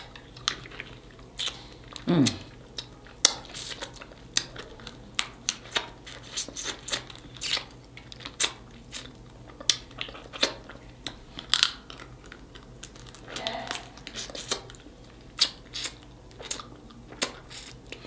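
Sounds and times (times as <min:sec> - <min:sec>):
crab shells cracking: 0:00.0 - 0:17.9.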